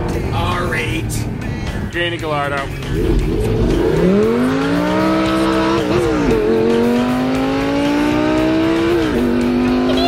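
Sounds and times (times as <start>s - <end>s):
car engine accelerating: 2.4s - 10.0s.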